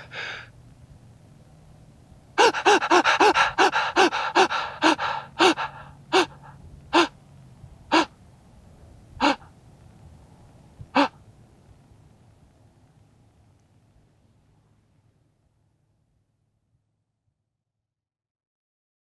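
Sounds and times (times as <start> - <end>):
man gasping: 0.0 - 0.5, 2.4 - 7.1, 7.9 - 8.1, 9.2 - 9.5, 11.0 - 11.2.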